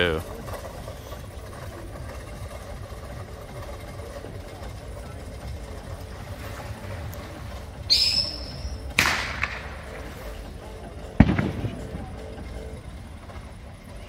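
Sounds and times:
low background rumble: 0.0 - 14.0
firework shriek: 7.8 - 10.3
firework bang: 7.9 - 10.2, 11.2 - 12.2.

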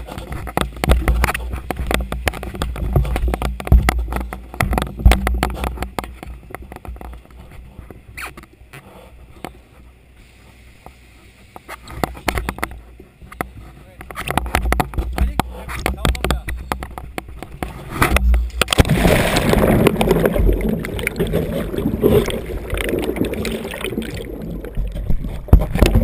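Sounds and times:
scratchy clicks and low thumps: 0.3 - 7.2, 13.4 - 26.0.

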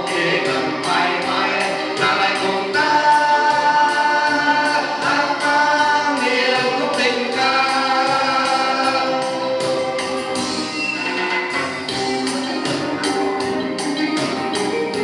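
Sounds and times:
men singing together: 0.0 - 9.6.

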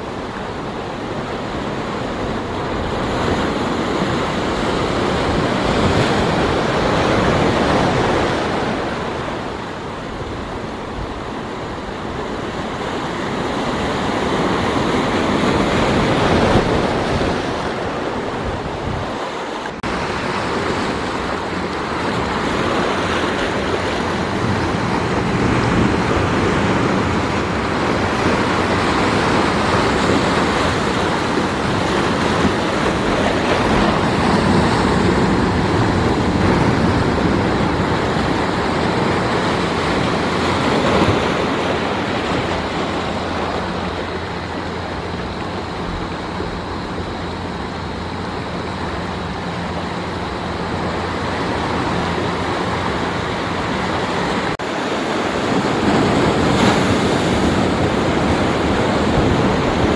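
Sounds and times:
sea waves breaking on rocks: 0.0 - 59.9.

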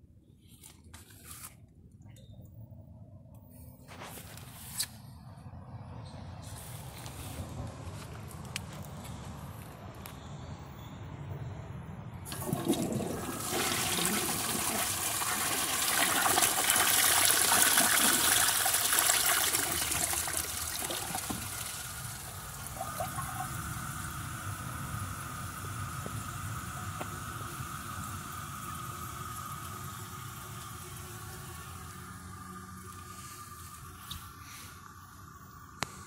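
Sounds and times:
toilet flushing: 12.3 - 34.0
tank refilling hiss: 12.3 - 36.0.

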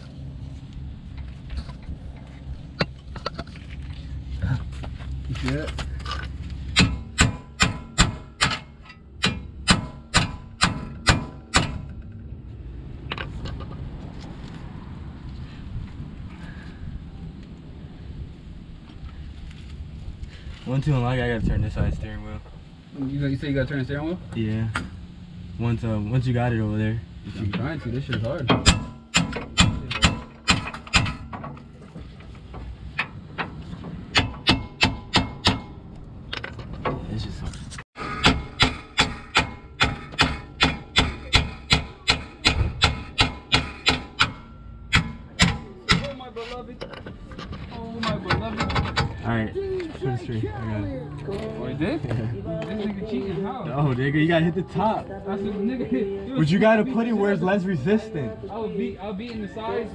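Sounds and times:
hammer beating on metal: 6.7 - 12.0, 28.5 - 31.5, 34.1 - 35.8, 38.0 - 46.3.

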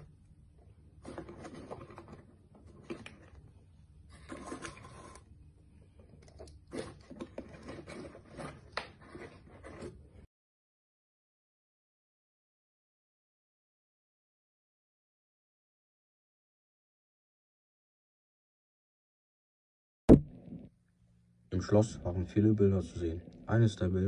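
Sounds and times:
plastic toy figures rustling: 1.0 - 10.3.

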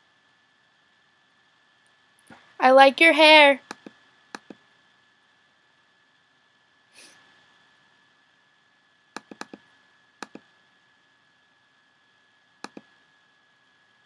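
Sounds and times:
faint high whine: 0.0 - 14.0
computer mouse clicking: 3.6 - 4.6, 9.2 - 10.5, 12.6 - 12.9.

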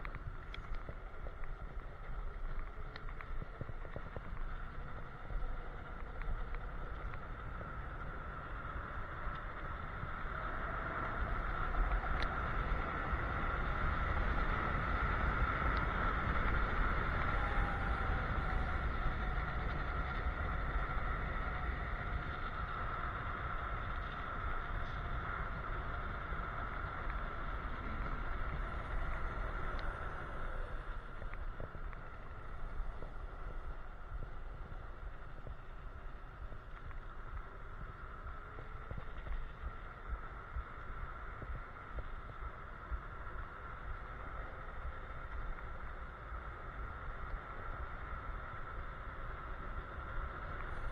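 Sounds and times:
wind rushing over microphone: 0.0 - 50.9.

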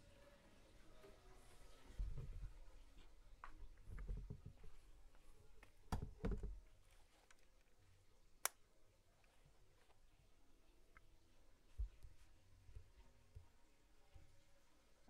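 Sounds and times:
handling thumps and knocks: 5.9 - 6.8.

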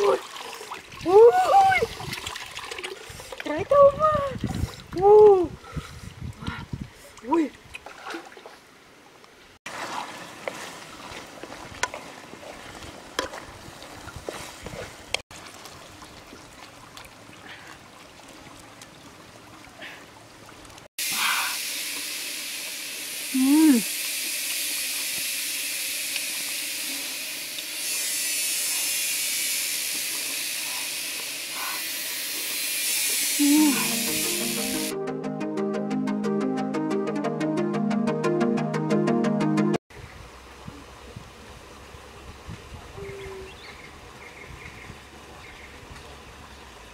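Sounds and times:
woman humming mm: 23.3 - 23.9, 33.4 - 34.7.

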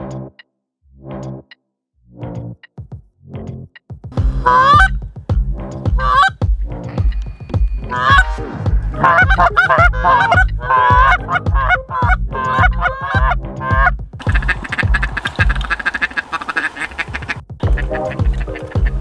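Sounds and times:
low background music beat: 2.2 - 16.1, 17.0 - 19.0
goose call honks and clucks: 4.4 - 5.0, 6.0 - 6.3, 7.9 - 8.3, 9.0 - 19.0.

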